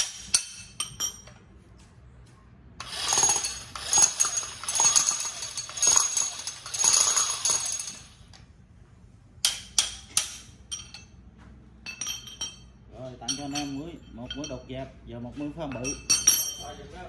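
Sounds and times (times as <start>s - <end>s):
rotary hammer drill running: 2.8s - 8.0s.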